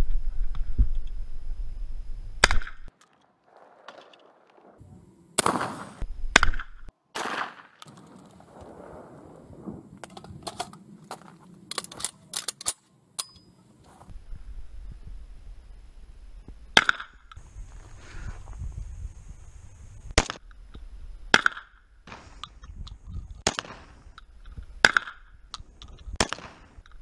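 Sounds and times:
wind rumble on microphone: 0:00.0 - 0:02.9, 0:08.0 - 0:11.5, 0:14.0 - 0:21.4, 0:22.3 - 0:26.2
shotgun shots: 0:05.4 - 0:07.8, 0:23.4 - 0:24.1, 0:26.2 - 0:26.8
metallic clicks of gun handling: 0:10.0 - 0:13.5.

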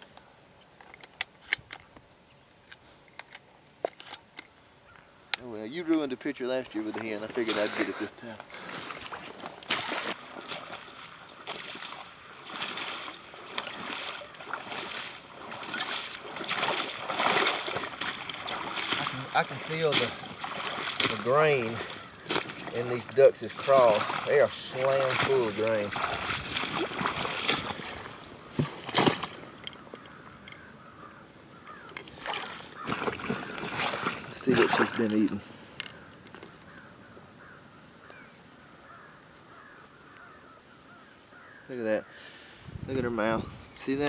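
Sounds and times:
distant bird calls: 0:04.2 - 0:05.8, 0:06.5 - 0:44.0
wading through shallow water: 0:06.8 - 0:37.5.

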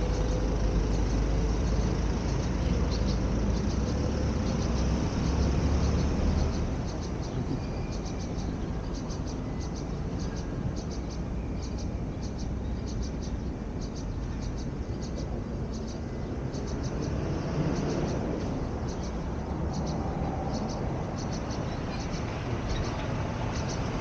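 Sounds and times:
road traffic rumble: 0:00.0 - 0:24.0.

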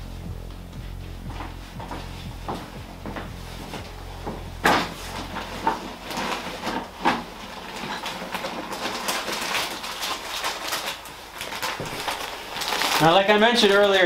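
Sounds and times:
small objects clattering on wood: 0:04.6 - 0:13.1.

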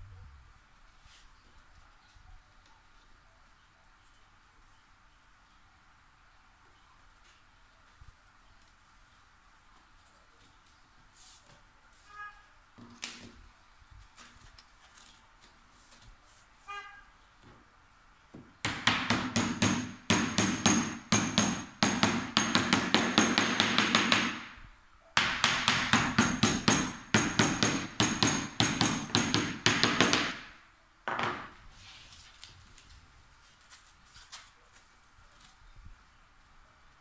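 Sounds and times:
hammer tapping wooden frame: 0:18.4 - 0:24.6, 0:25.2 - 0:30.5.

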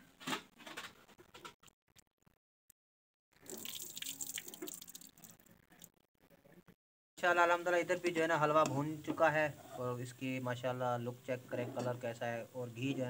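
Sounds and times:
tap water running and dripping: 0:03.4 - 0:05.9.

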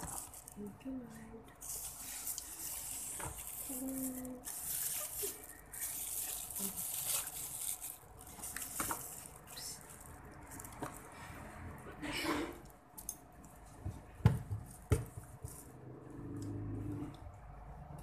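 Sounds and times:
cardboard box crinkling: 0:00.0 - 0:00.6, 0:01.6 - 0:11.0
plastic bag rustling: 0:00.0 - 0:11.9.

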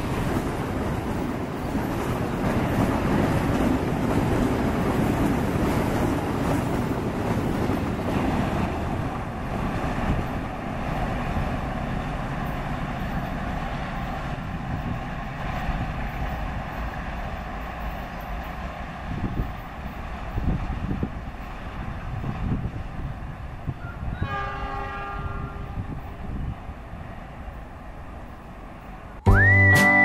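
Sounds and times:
wind on microphone: 0:00.0 - 0:11.6, 0:19.0 - 0:27.1
train wheels rumbling on rails: 0:00.0 - 0:29.6.

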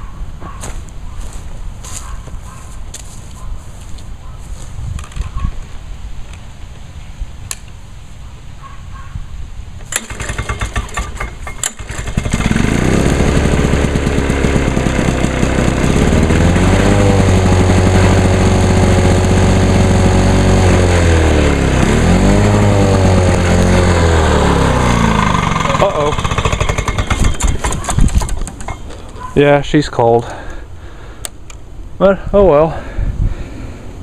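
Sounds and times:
recoil starter pulls: 0:09.8 - 0:20.9, 0:21.8 - 0:29.3
lawn mower engine running: 0:09.8 - 0:29.3.

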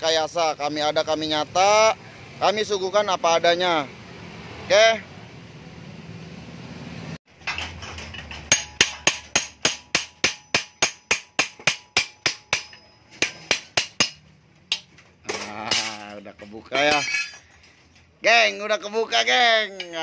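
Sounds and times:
hammer striking steel muffler: 0:07.3 - 0:16.2.

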